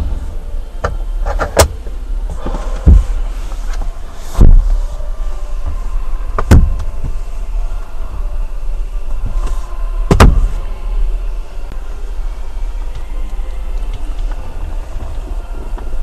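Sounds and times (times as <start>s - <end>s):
low car cabin rumble: 0.0s - 16.0s
sharp thumps: 10.1s - 10.6s.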